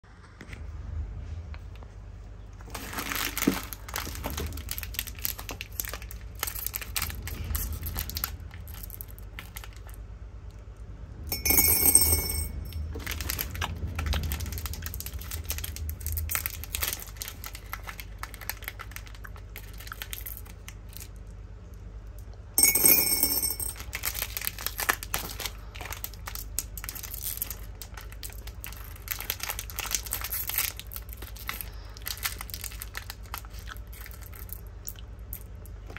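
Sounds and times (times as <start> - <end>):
plastic wrappers crinkling: 2.6 - 10.0, 12.9 - 21.3, 23.8 - 35.9.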